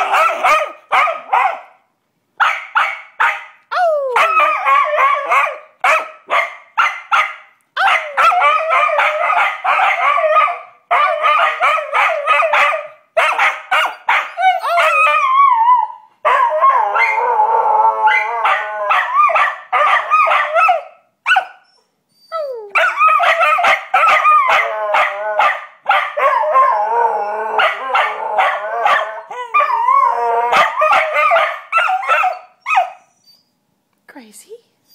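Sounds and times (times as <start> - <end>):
dogs yipping: 0.0 - 1.7, 2.4 - 15.4, 18.1 - 26.7, 27.6 - 33.5
dogs howling: 3.8 - 5.6, 7.8 - 12.9, 14.2 - 20.8, 22.4 - 33.0.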